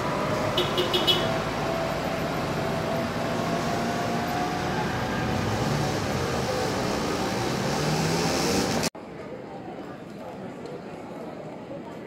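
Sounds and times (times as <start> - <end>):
road noise: 0.0 - 9.1.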